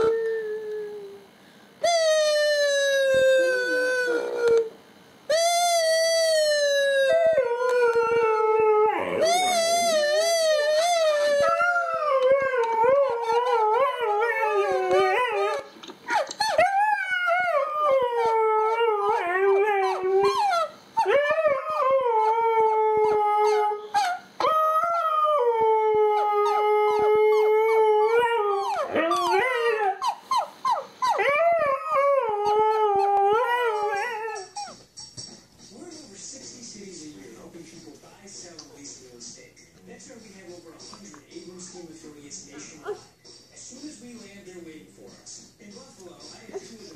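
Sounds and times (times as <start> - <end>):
dog howling: 1.8 - 4.8, 5.5 - 34.8
dog yelping: 8.9 - 17.6, 18.2 - 21.8, 23.0 - 25.1, 26.2 - 31.8, 32.4 - 35.2.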